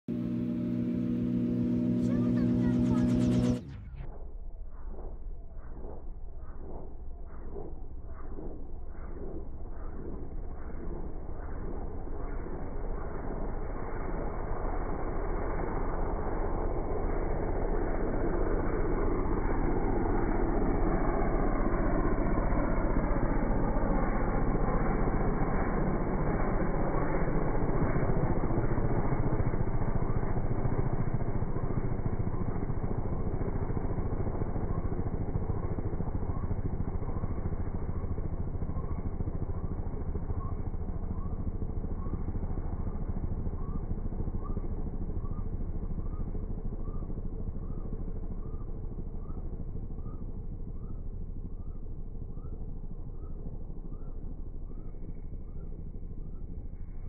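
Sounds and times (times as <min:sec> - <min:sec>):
aircraft engine and propeller drone: 0:00.0 - 0:57.0.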